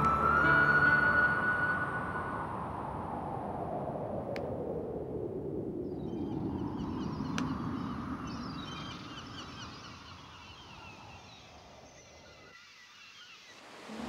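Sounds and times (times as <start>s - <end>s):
low rushing noise: 0.0s - 10.4s
small birds chirping: 5.9s - 13.7s.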